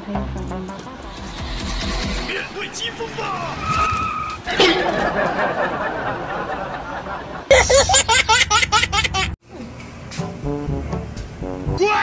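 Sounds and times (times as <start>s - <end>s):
steady noisy rushing: 0.8s - 4.6s
baby laughing: 7.5s - 9.4s.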